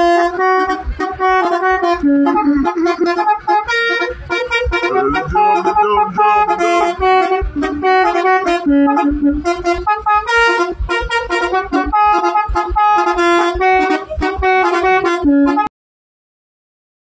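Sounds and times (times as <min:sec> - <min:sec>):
musical air horn playing a tune: 0:00.0 - 0:15.7
low thumps: 0:04.2 - 0:11.2.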